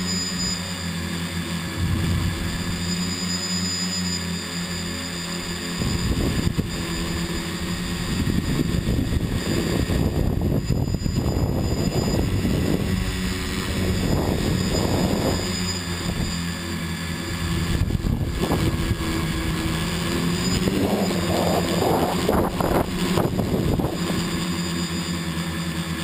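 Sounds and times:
drone propellers whining: 0:00.0 - 0:26.0
low rumbling: 0:01.6 - 0:03.6, 0:17.7 - 0:24.3.

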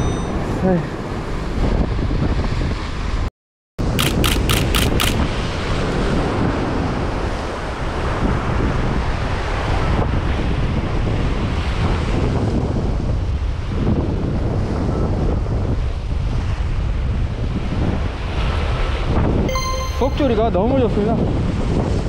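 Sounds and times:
sharp clicks: 0:04.0 - 0:05.3.

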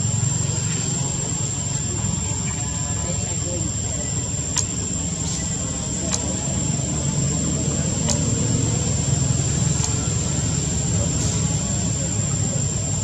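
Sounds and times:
constant high-pitched whine: 0:00.0 - 0:13.0
steady low rumble: 0:00.0 - 0:13.0
faint sharp ticks: 0:04.5 - 0:04.8, 0:06.0 - 0:06.4, 0:08.0 - 0:08.4, 0:09.8 - 0:10.0.

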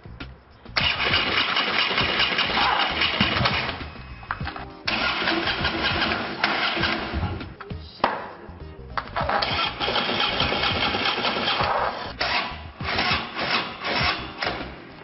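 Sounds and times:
motorcycle engine running: 0:00.8 - 0:07.4.

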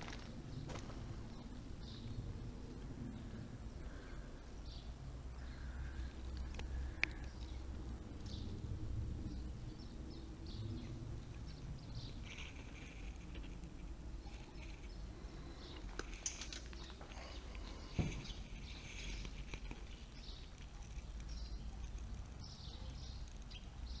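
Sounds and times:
birds chirping: 0:00.0 - 0:24.0
steady low rumble: 0:00.0 - 0:24.0.

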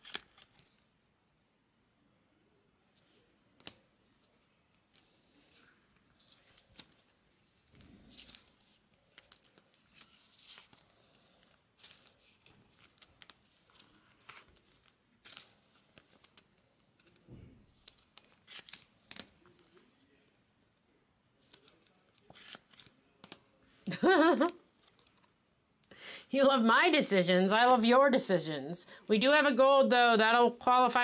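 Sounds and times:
trading cards rustling and crinkling: 0:00.0 - 0:00.9, 0:02.9 - 0:20.4, 0:21.4 - 0:25.4.

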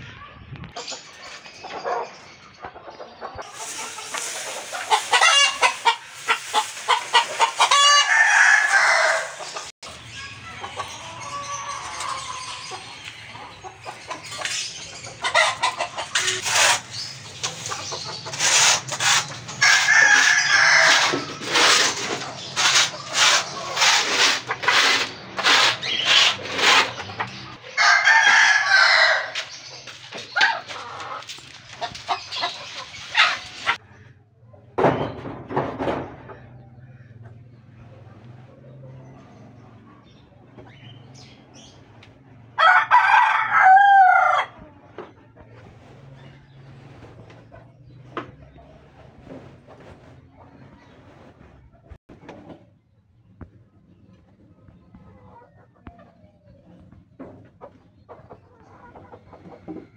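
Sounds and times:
chickens clucking: 0:00.0 - 0:59.9
rooster crowing: 0:07.7 - 0:09.4, 0:19.6 - 0:21.3, 0:27.7 - 0:29.5, 0:42.6 - 0:44.6.

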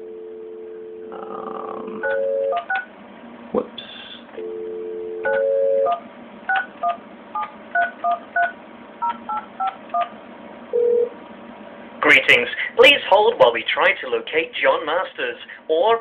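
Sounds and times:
dial tone: 0:00.0 - 0:02.6, 0:04.4 - 0:06.0
phone keypad beeps: 0:05.2 - 0:10.1.

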